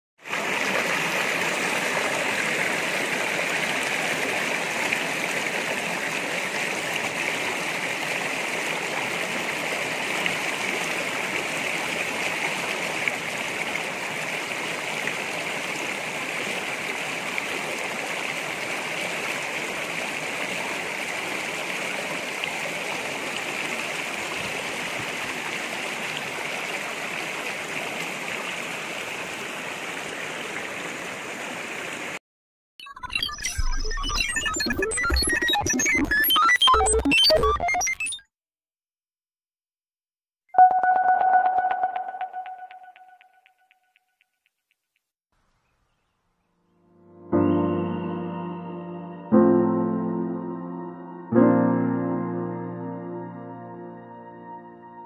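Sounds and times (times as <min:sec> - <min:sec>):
stream flowing over stones: 0:00.2 - 0:32.2.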